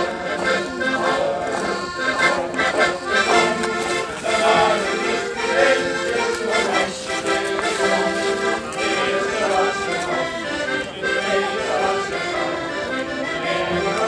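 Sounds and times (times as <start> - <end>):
accordion playing folk dance tune: 0.0 - 14.0.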